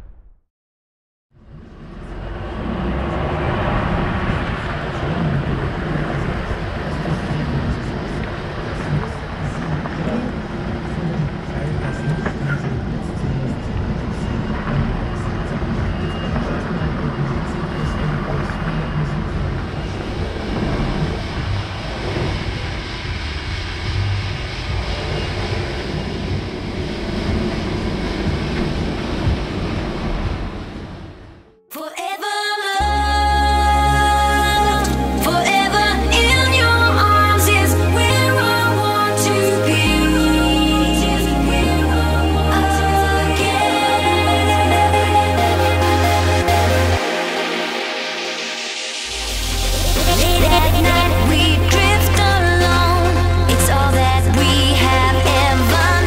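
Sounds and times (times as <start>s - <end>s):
truck diesel engine running: 1.4s - 31.4s, 49.1s - 56.0s.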